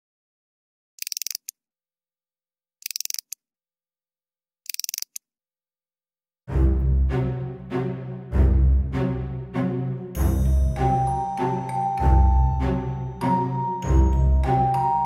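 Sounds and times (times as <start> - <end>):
chattering teeth toy clacking: 1.0 - 1.6, 2.8 - 3.4, 4.6 - 5.2.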